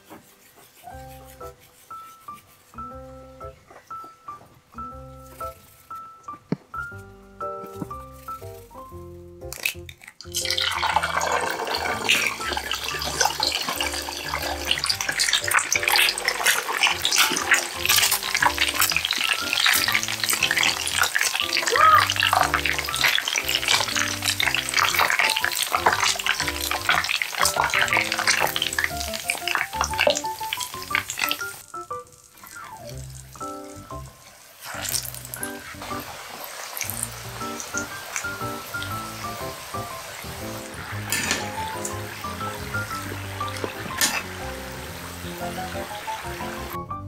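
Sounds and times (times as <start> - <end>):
eggs frying in hot oil: 7.5 - 46.8.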